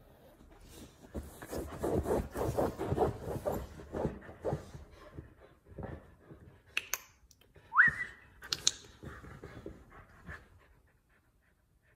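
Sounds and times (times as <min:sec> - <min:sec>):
dog scratching at bed: 0:01.1 - 0:04.7.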